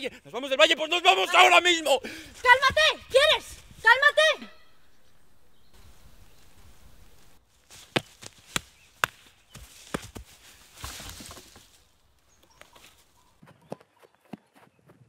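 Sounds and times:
dry leaves rustling: 4.7s - 13.4s
twigs snapping underfoot: 5.8s - 13.2s.

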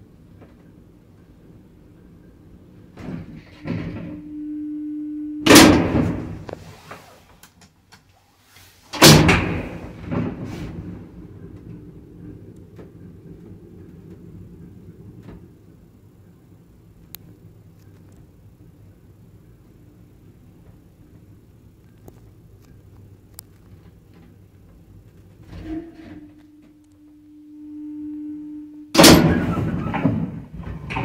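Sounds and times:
lift hum: 0.0s - 7.3s, 8.8s - 31.0s
lift doors banging: 5.5s - 6.5s, 9.0s - 15.6s, 29.0s - 31.0s
lift door clicks: 29.0s - 31.0s.

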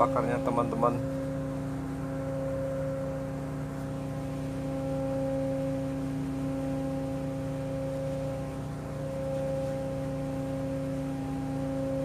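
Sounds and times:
diesel generators humming: 0.0s - 12.0s.

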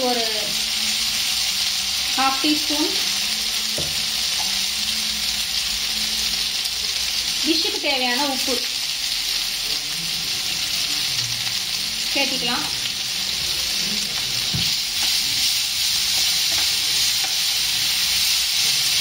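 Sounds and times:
potatoes sizzling in oil: 0.0s - 19.0s
spatula stirring in pan: 13.4s - 19.0s.

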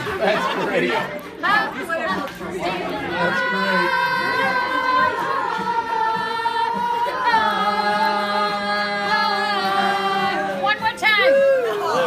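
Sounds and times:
voices singing long notes: 2.5s - 12.0s.

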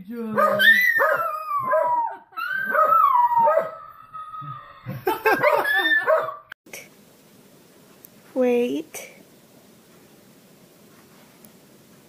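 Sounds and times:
dogs howling: 0.4s - 6.5s.

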